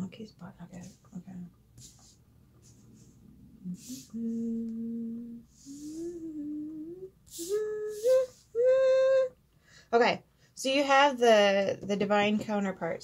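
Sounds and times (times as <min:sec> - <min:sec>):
woman humming: 0:03.6 - 0:09.4
woman breathing: 0:09.5 - 0:10.6.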